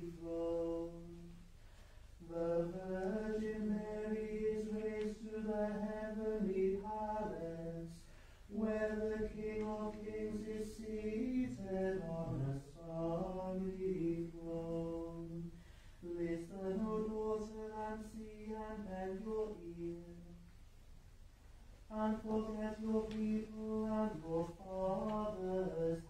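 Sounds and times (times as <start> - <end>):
voices singing plainchant: 2.3 - 15.4.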